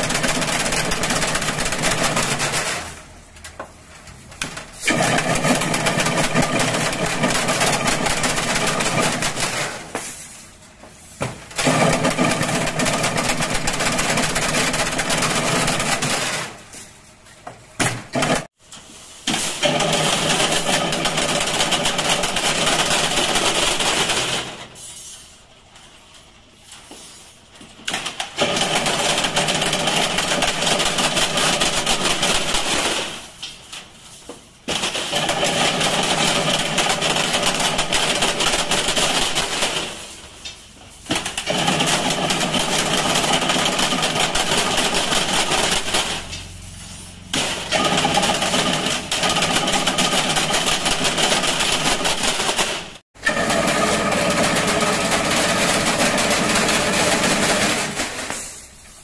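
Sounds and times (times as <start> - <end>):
fence weaving machine humming: 4.5 - 10.0, 40.8 - 58.5.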